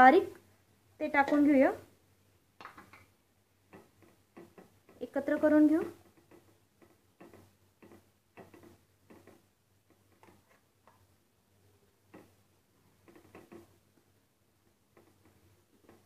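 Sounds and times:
spatula tapping and scraping a pan: 1.2 - 1.6, 3.6 - 11.2, 12.1 - 16.0.

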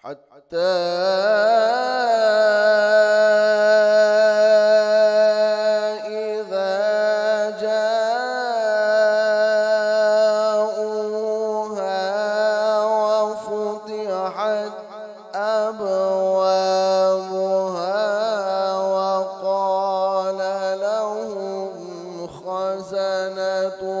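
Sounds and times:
man chanting through microphone: 0.0 - 24.0.

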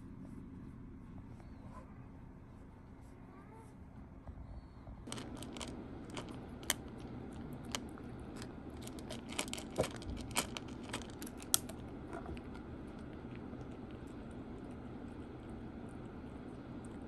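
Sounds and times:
cat crunching dry kibble: 5.1 - 17.0.

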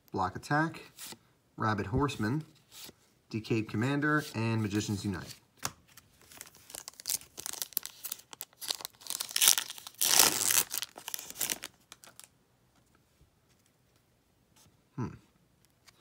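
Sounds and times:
foil wrapper crinkling and ripping: 6.2 - 12.3.

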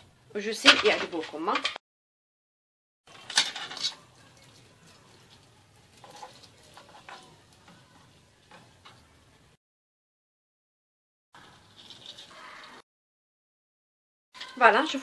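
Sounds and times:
doughnut sizzling in hot oil: 3.1 - 9.6
small crackles: 3.1 - 9.6, 11.4 - 12.8.

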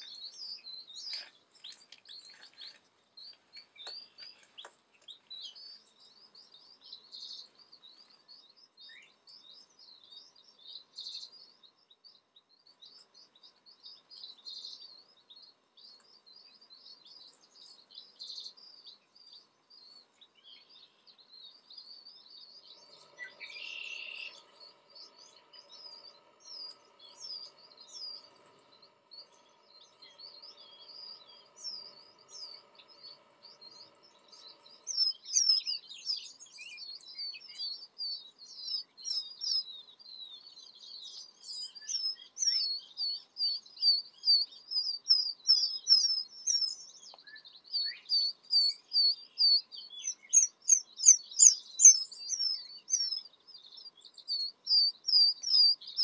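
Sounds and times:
chicks peeping: 22.0 - 39.7.

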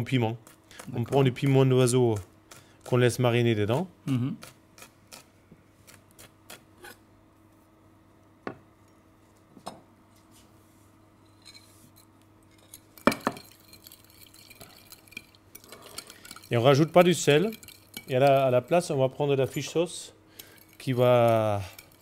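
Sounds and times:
metal spoon clinking glass bowl: 12.5 - 18.5, 20.4 - 22.0.

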